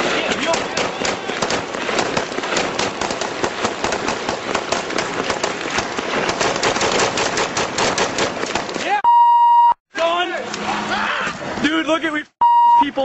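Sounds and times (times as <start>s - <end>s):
rapid gunfire shots: 0.0s - 9.0s.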